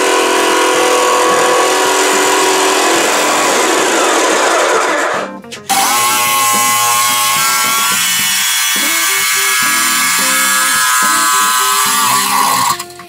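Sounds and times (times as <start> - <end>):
power tool whining: 0.0 - 13.0
background music: 4.0 - 13.0.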